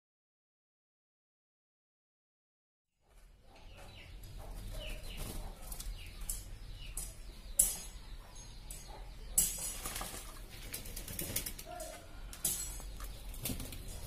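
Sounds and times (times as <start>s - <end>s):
wings flapping: 9.6s - 11.8s, 13.3s - 14.0s.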